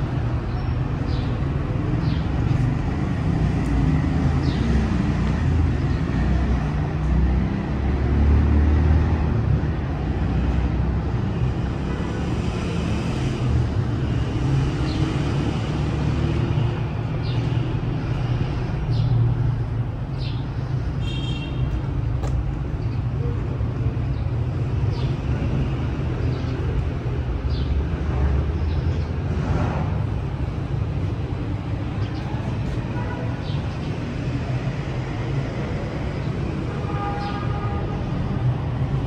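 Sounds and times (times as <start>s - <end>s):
city traffic rumble: 0.0s - 39.0s.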